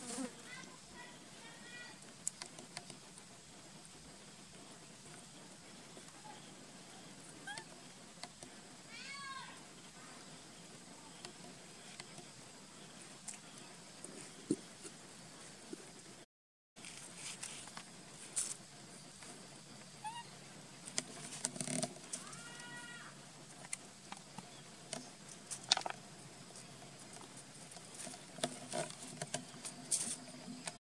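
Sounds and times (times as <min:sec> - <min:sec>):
baby monkey high call: 0:07.4 - 0:07.6, 0:20.0 - 0:20.4
clicks and rustles of handling: 0:23.6 - 0:30.8.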